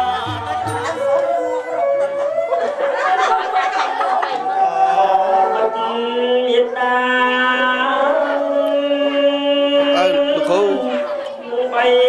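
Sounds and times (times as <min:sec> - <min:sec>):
low drone note: 0:00.0 - 0:01.5
chanted singing in held notes: 0:00.0 - 0:01.6.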